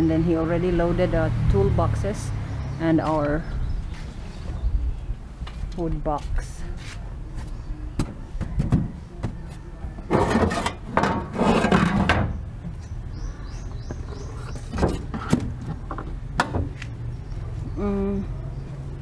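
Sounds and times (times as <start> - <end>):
scraping on wooden box: 10.1 - 12.4.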